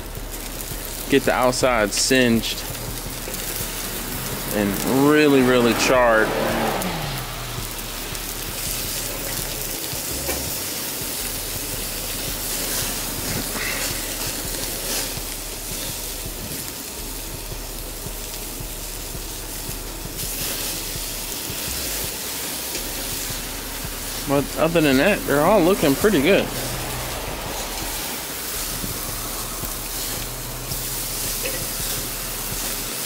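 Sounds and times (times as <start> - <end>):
fat flaring on coals: 0.0 - 33.0
meat sizzling on charcoal: 0.0 - 33.0.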